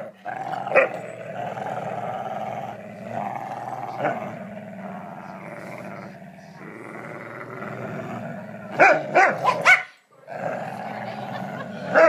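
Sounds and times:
dogs play-growling: 0:00.0 - 0:09.6, 0:10.2 - 0:12.0
dog barking loudly: 0:08.8 - 0:10.0.

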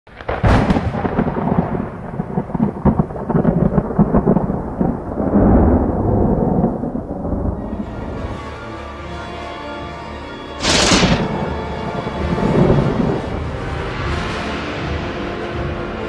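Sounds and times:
thunder crack and rumble: 0:00.1 - 0:08.3, 0:10.6 - 0:14.3.

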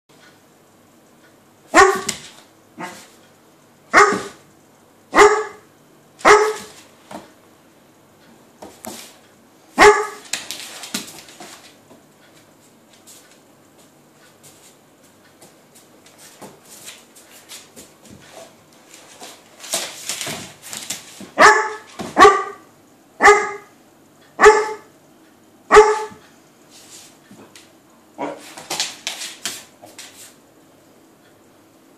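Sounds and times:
dog barking: 0:01.7 - 0:02.2, 0:02.8 - 0:03.0, 0:03.9 - 0:04.4, 0:05.1 - 0:06.7, 0:09.8 - 0:10.2, 0:21.4 - 0:23.7, 0:24.4 - 0:24.9, 0:25.7 - 0:26.2, 0:28.2 - 0:28.4.

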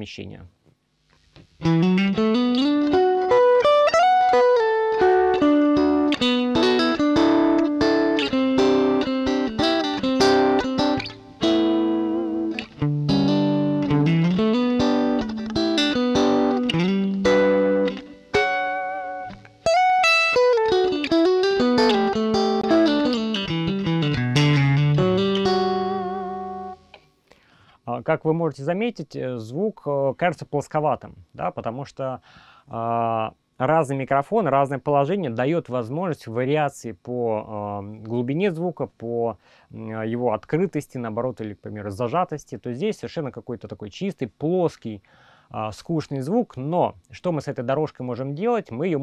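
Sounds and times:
electric guitar melody: 0:01.4 - 0:27.0.

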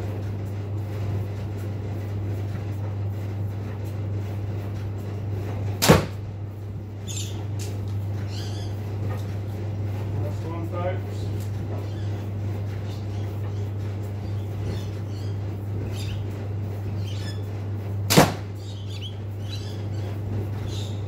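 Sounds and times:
arrow striking target crack: 0:05.8 - 0:06.2, 0:18.1 - 0:18.4.

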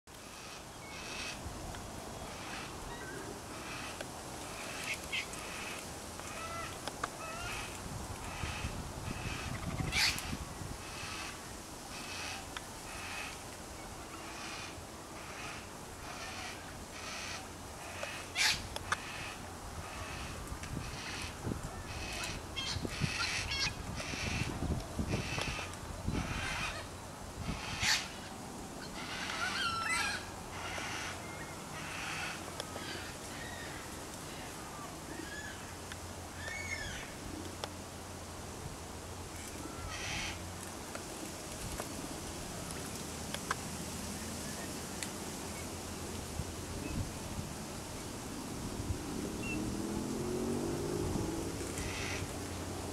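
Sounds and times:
cockatoo calling: 0:04.6 - 0:13.4, 0:14.3 - 0:24.5, 0:25.1 - 0:35.7, 0:36.4 - 0:37.2, 0:39.6 - 0:40.4.

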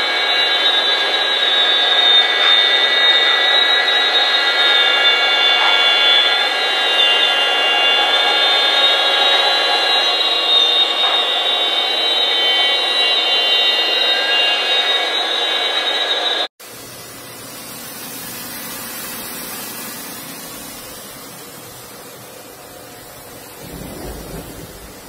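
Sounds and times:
mill spindle whine: 0:00.0 - 0:25.0
coolant spray hiss: 0:16.6 - 0:25.0.

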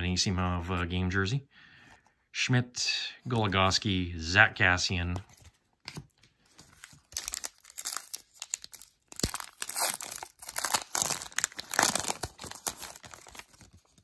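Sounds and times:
foil wrapper tearing and crinkling: 0:06.8 - 0:14.0.

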